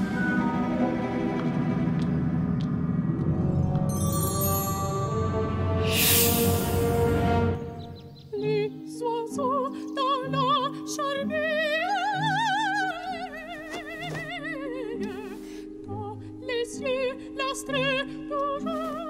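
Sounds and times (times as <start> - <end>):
soft sustained accompaniment: 0.0 - 13.5.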